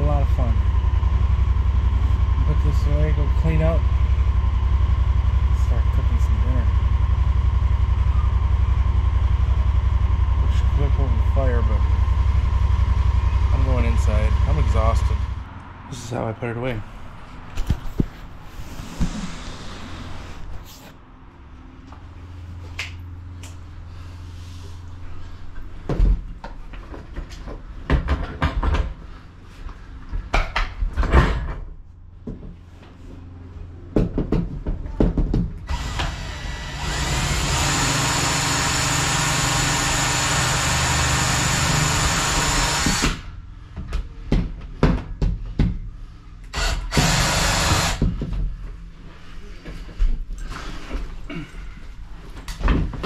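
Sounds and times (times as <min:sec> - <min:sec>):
power drill whining: 0:35.7 - 0:43.2, 0:46.5 - 0:48.0.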